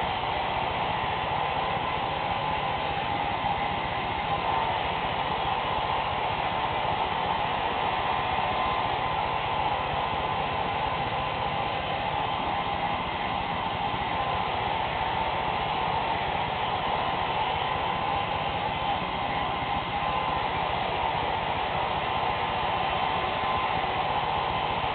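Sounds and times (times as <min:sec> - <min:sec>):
hair dryer blowing: 0:00.0 - 0:24.9.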